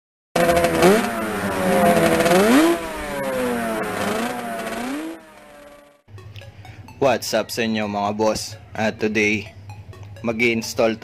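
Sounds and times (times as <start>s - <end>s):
engine revving: 0.4s - 6.0s.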